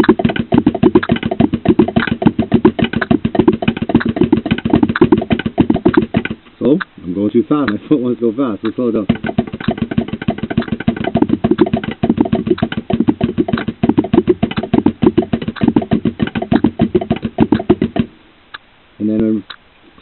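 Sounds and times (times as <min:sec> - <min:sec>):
drum roll on practice pads: 0:00.0 - 0:06.4, 0:08.8 - 0:18.2
bass drum pedal strokes: 0:00.0 - 0:06.7, 0:08.6 - 0:18.2.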